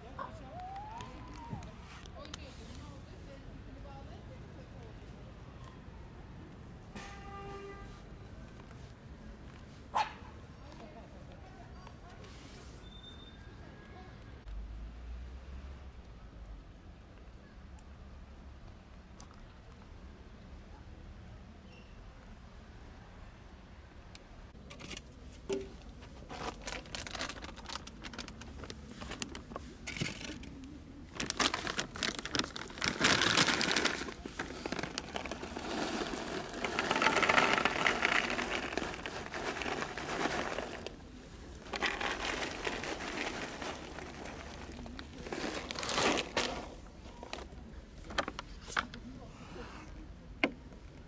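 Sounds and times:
plastic bag rustling: 26.1 - 48.4
kibble pattering into trays: 31.2 - 47.5.

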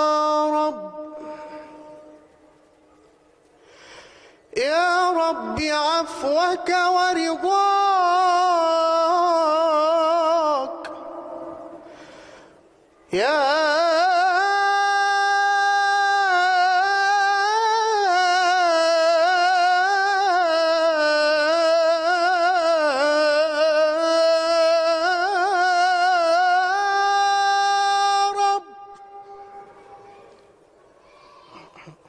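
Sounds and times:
man singing unaccompanied chant: 0.0 - 2.2, 4.5 - 11.9, 13.1 - 29.7.

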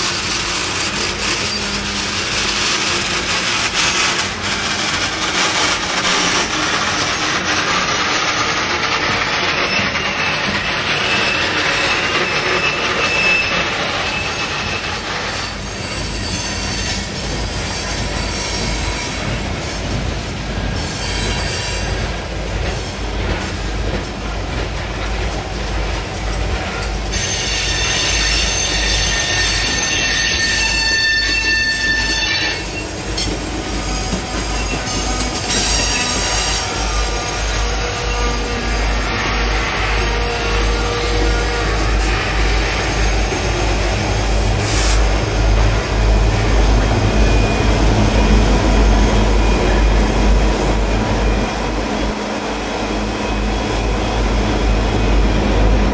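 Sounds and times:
steel wheels squealing on rail: 0.0 - 55.9
diesel locomotives low rumble: 32.0 - 55.9.

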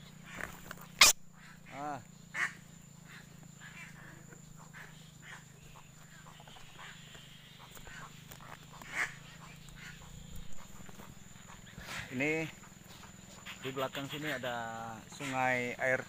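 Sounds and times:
high insect-like tone: 0.0 - 16.0
clicks and rustling branches: 0.1 - 1.2, 3.1 - 13.6.

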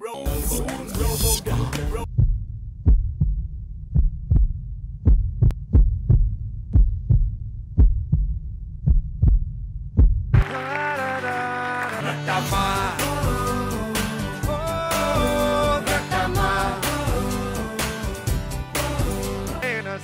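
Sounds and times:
music: 0.0 - 2.1, 10.4 - 20.0
heartbeat: 0.9 - 10.4.

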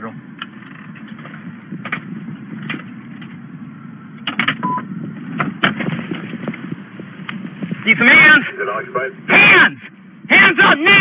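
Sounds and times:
car engine and road rumble: 0.0 - 11.0
short beep: 4.6 - 4.9.

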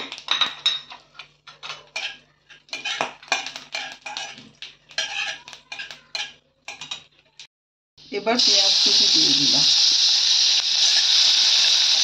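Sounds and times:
metal spatula scraping a pan: 0.8 - 7.1.

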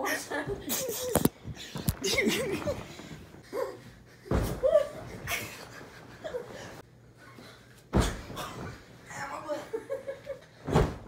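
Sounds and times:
pillow thumping: 4.2 - 6.2, 7.9 - 8.9, 10.6 - 11.0.

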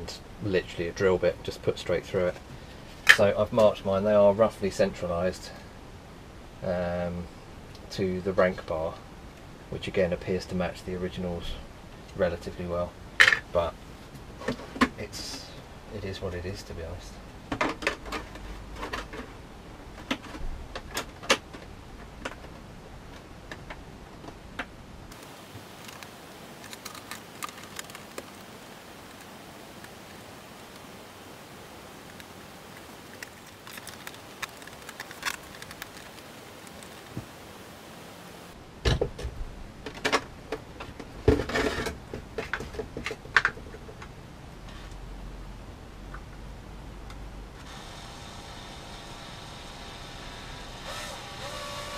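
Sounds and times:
plastic helmet and tools handled: 17.5 - 24.7, 25.5 - 30.0, 32.0 - 37.4.

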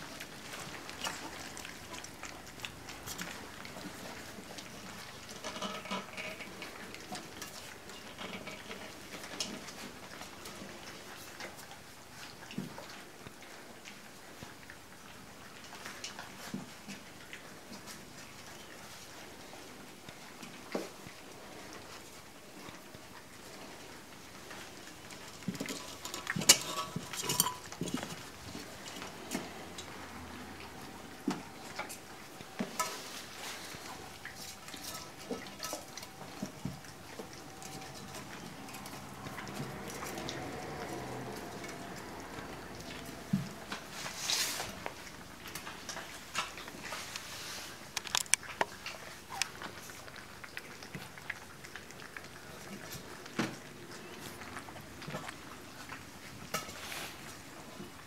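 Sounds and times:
puppies crunching kibble: 0.0 - 58.0
metal pan clinking: 25.7 - 27.9.

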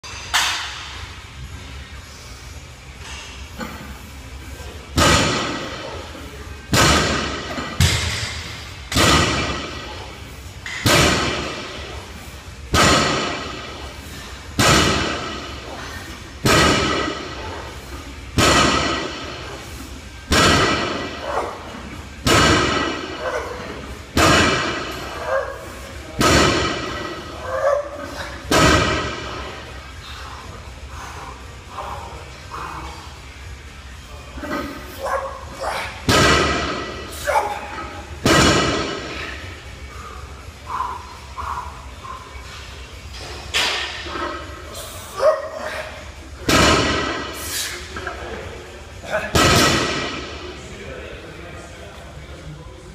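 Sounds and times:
barbell plates slamming on floor: 6.7 - 9.7, 10.7 - 11.7, 12.7 - 13.6, 14.6 - 15.4, 22.2 - 23.2, 24.2 - 25.0.

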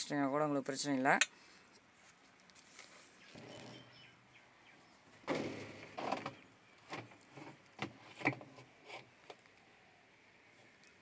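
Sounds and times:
plastic drum scraping: 5.3 - 9.1.

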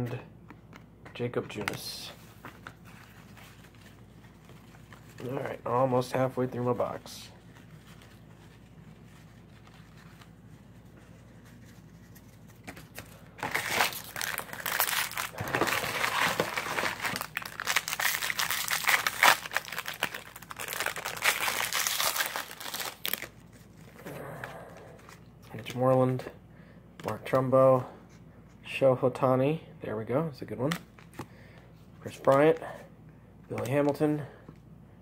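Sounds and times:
wrapper tearing and crinkling: 12.9 - 24.0.

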